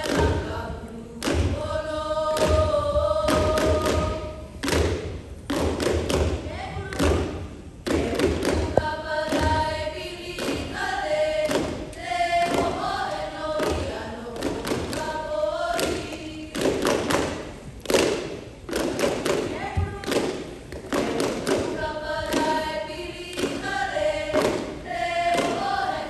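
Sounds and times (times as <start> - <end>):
chorus of voices singing: 0.0 - 4.5, 7.9 - 17.3, 20.9 - 26.0.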